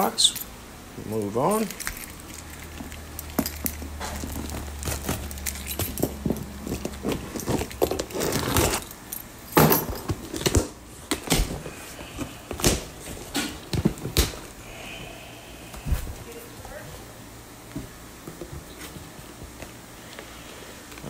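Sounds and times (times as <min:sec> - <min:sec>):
keys jangling: 0:01.5 - 0:10.1
packing tape tearing: 0:04.0 - 0:08.9.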